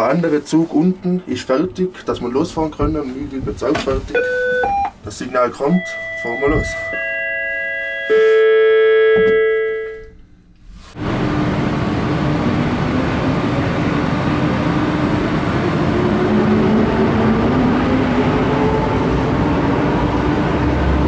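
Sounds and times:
electronic chime ringing: 4.2 - 10.1
funicular car rolling with hum: 11.0 - 21.0.

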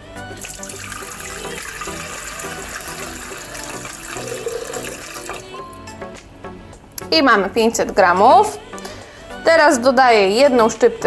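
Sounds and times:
water pouring into bowl: 0.3 - 5.7.

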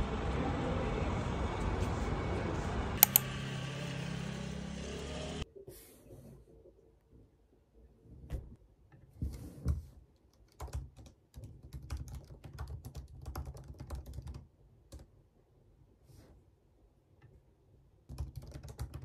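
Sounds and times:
laptop keyboard typing: 3.0 - 3.3, 10.3 - 15.1, 18.1 - 19.0.

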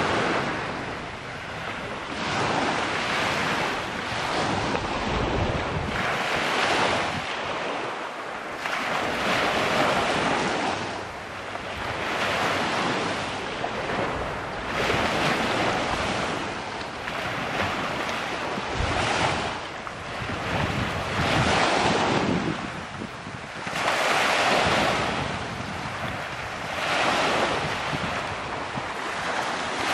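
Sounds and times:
sea waves washing onto shore: 0.0 - 29.9.

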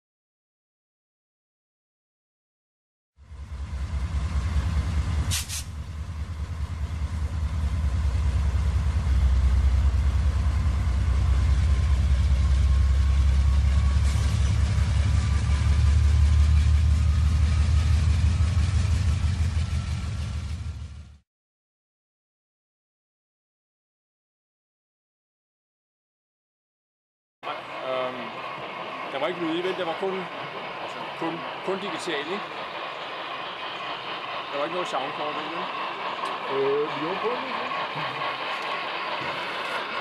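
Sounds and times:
model train rumble: 3.2 - 21.2, 27.4 - 40.0.

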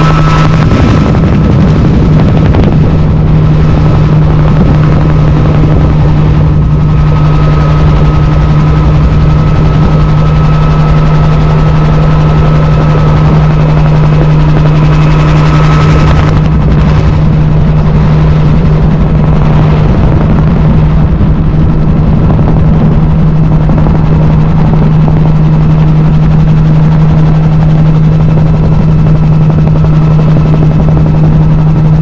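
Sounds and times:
helicopter engine and rotors drone: 0.0 - 32.0.

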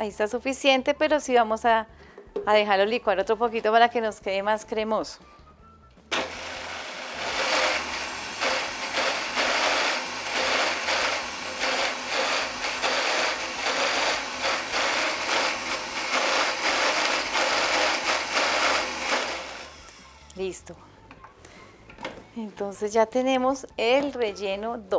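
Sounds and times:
blender running at high speed: 6.1 - 20.2.

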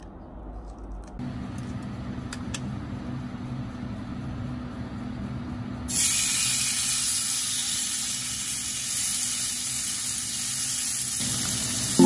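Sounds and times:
meat sizzling in a frying pan: 5.9 - 12.0.

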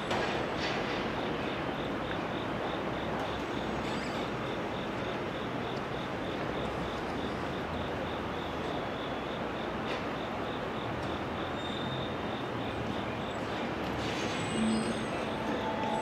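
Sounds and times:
rumble of rail surroundings: 0.0 - 16.0
high pulsing chirp: 14.5 - 16.0.

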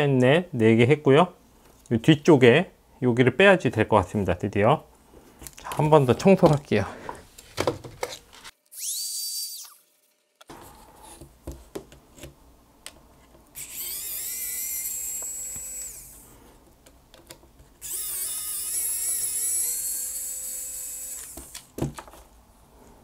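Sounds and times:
electric screwdriver whirring: 13.6 - 16.2, 17.8 - 21.7.

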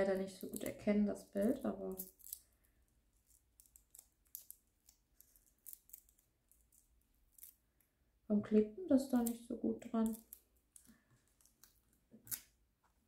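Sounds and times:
paper and tape ticks and rustles: 0.0 - 2.5.

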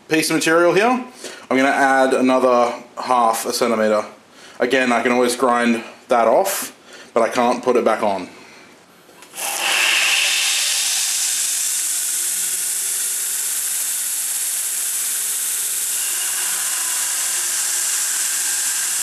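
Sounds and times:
belt grinder hissing: 9.2 - 19.0
steel block grinding on belt: 9.4 - 19.0.

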